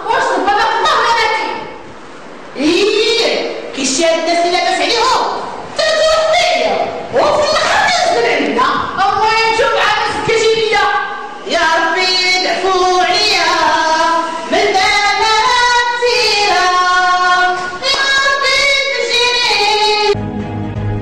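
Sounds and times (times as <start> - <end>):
woman singing unaccompanied: 2.6 - 20.2
instrumental music with strong bass: 20.2 - 21.0.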